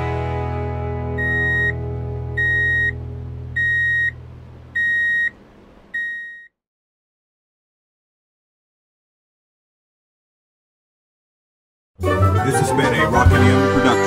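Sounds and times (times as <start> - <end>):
high electronic beeps: 1.2 - 1.8, 2.4 - 3.0, 3.6 - 4.2, 4.8 - 5.4, 6.0 - 6.5.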